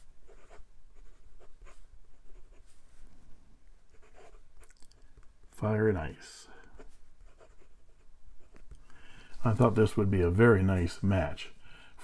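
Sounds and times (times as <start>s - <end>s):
pen nib scratching on paper: 0.0s - 2.6s, 3.9s - 4.8s, 6.7s - 8.8s.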